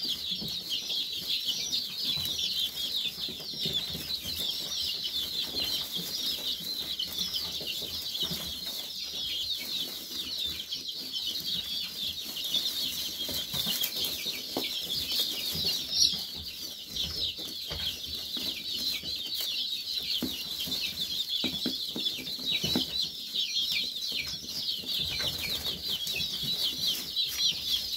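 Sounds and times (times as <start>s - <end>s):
chicks pecking in hay: 0.0s - 27.9s
chicks peeping: 0.0s - 27.9s.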